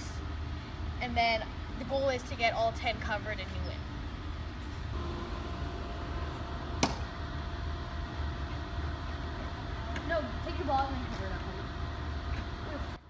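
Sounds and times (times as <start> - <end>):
sharp knock: 6.8 - 7.1.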